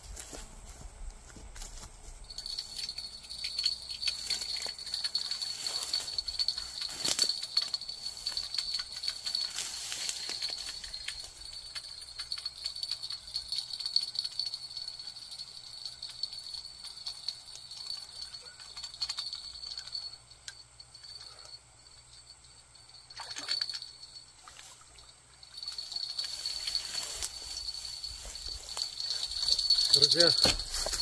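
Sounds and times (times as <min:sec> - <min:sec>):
insects chirring: 0:00.0 - 0:31.0.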